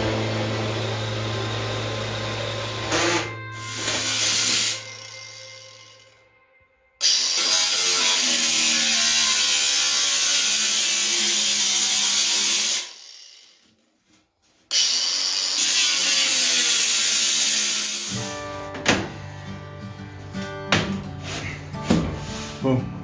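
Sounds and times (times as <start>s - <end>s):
angle grinder cutting steel pipe: 0.0s - 6.3s, 7.0s - 13.8s, 14.7s - 18.4s.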